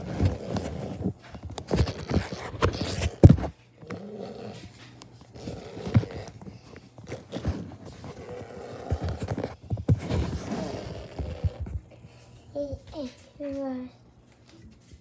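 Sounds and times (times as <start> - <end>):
footsteps: 4.5 - 15.0.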